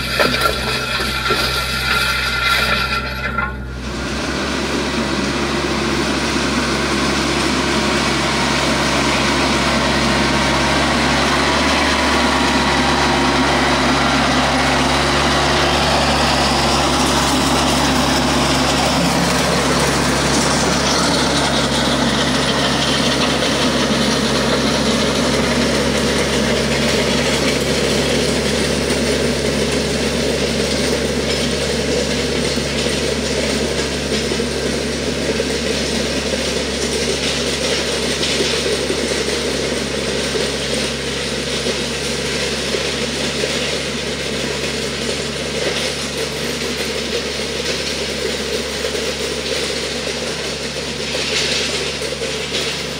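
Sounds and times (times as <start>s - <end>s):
blades scraping through gravel: 0.0s - 3.6s
tractor diesel engine running: 0.0s - 52.9s.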